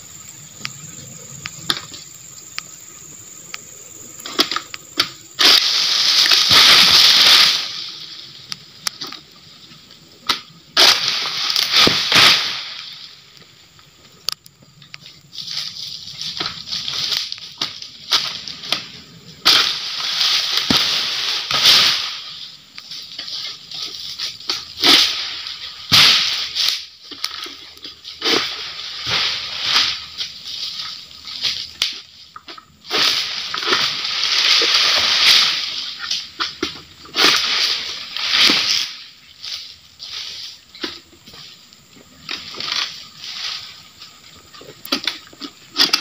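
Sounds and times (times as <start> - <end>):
palm fronds rustling and scraping: 0.5 - 46.0
sharp cracks: 4.2 - 9.3, 10.2 - 13.2, 16.4 - 22.9, 24.5 - 30.1, 32.9 - 39.6.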